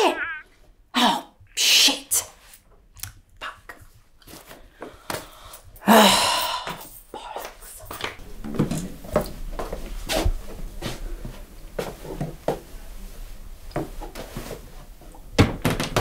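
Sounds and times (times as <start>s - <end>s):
light footsteps: 6.8s - 14.7s.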